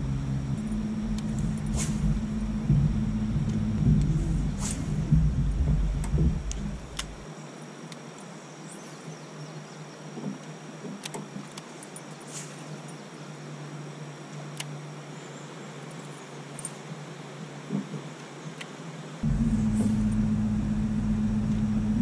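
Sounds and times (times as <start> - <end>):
faint low hum: 0.0 - 10.5, 11.2 - 22.0.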